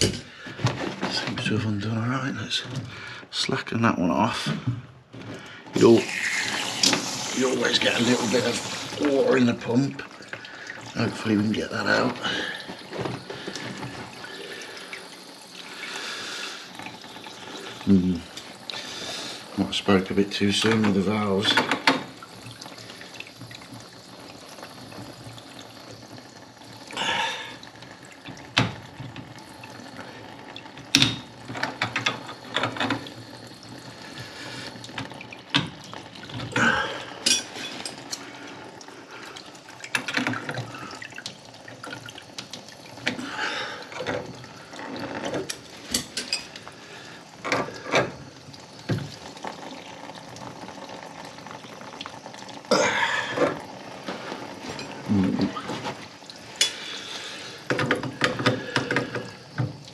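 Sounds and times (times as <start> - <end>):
water dripping into bucket: 5.4 - 59.9
clicks and knocks of pump fittings: 39.9 - 43.2, 57.6 - 59.8.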